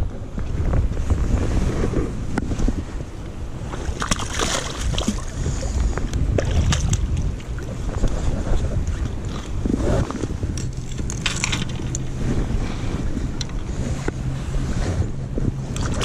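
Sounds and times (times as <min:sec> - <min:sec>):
wind buffeting microphone: 0:00.0 - 0:16.0
fish splashing in water: 0:03.9 - 0:05.4.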